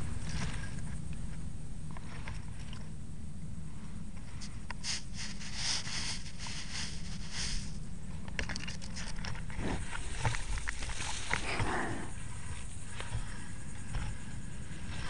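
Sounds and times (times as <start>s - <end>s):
steady low rumble: 0.0s - 15.0s
sand scraping against plastic: 4.3s - 7.8s.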